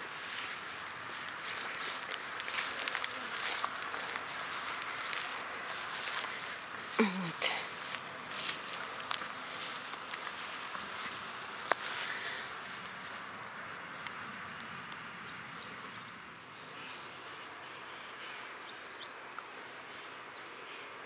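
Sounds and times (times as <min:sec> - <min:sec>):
steady background hiss: 0:00.0 - 0:21.0.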